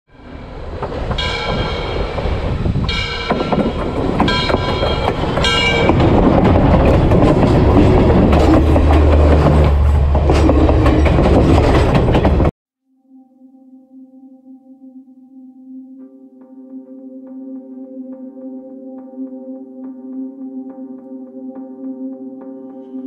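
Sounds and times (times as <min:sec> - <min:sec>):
train rumbling overhead: 0:00.1 - 0:12.5
wheels clicking over rails: 0:00.6 - 0:12.5.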